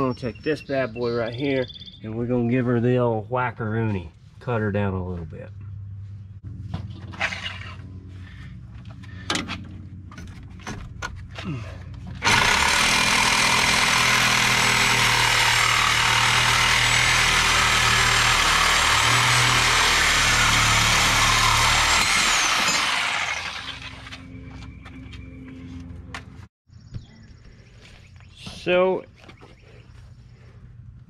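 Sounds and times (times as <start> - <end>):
power tool cutting metal: 12.2 - 24.2.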